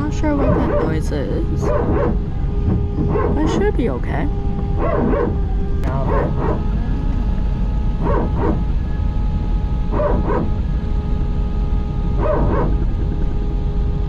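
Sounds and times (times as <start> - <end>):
hydraulic pump barking: 0.0 - 6.9, 7.9 - 8.7, 9.8 - 10.7, 12.0 - 13.0
aircraft engine whine and rumble: 0.0 - 14.0.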